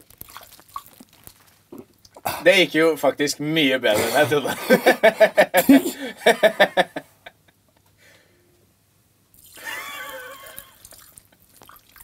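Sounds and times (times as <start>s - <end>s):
liquid pouring into mouth: 0.0s - 2.4s, 9.4s - 12.0s
man gurgling: 1.8s - 2.5s, 3.9s - 6.2s.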